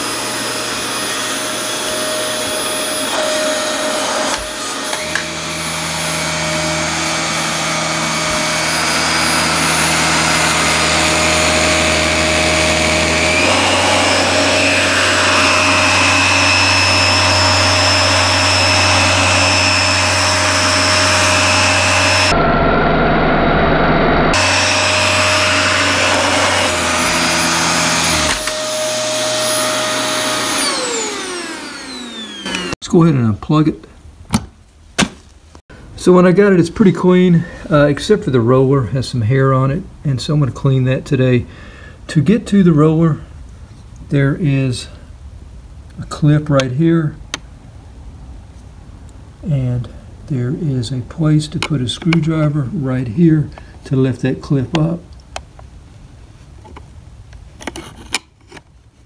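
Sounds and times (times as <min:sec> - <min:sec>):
vacuum cleaner motor whine: 0:00.0 - 0:32.8
low hum: 0:05.2 - 0:26.8.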